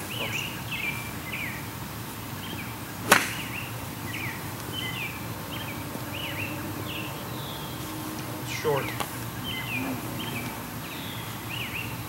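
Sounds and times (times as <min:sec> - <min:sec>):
birds chirping: 0:00.0 - 0:12.0
golf club striking ball: 0:03.0 - 0:03.7.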